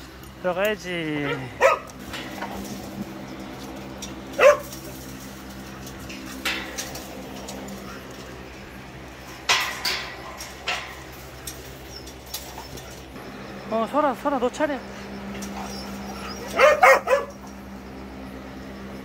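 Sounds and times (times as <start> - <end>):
wire kennel gate clattering: 1.2 - 13.2, 14.5 - 17.8
dog crying: 15.5 - 17.5.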